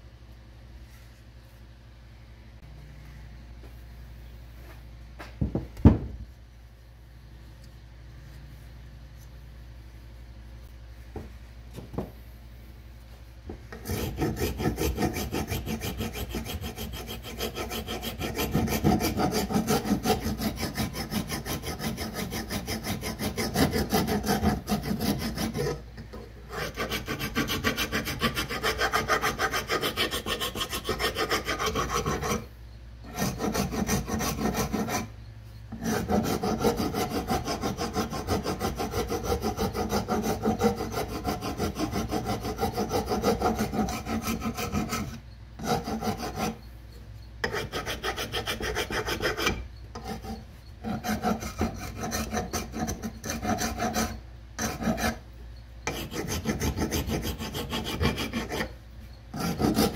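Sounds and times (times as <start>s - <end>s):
file rasping wood: 13.7s - 25.8s, 26.5s - 35.1s, 35.7s - 46.7s, 47.4s - 55.2s, 55.8s - 59.9s.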